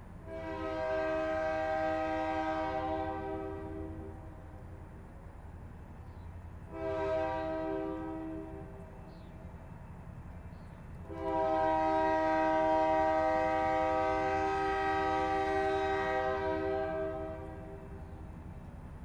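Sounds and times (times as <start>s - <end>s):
locomotive air horn blast: 0.2s - 4.3s, 6.7s - 8.8s, 11.1s - 18.0s.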